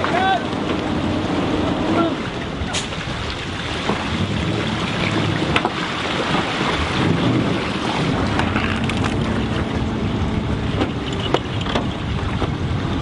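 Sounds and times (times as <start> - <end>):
low engine hum: 0.0 - 13.0
wind buffeting microphone: 0.0 - 13.0.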